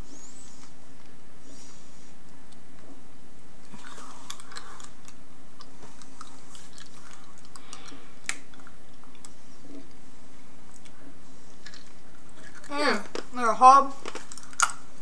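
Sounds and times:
steady low hum: 0.0 - 15.0
candy being chewed: 3.6 - 10.0, 10.6 - 15.0.

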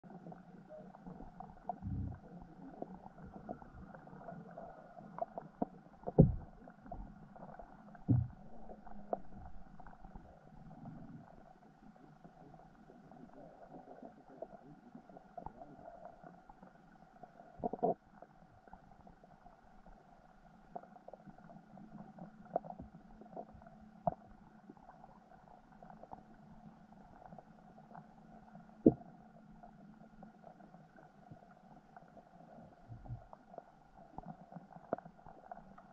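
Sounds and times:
faint steady hum: 0.0 - 35.9
dull low underwater thumps: 1.8 - 2.3, 6.0 - 7.2, 7.9 - 9.9
small clicks and pops: 12.0 - 19.6, 20.5 - 35.9.

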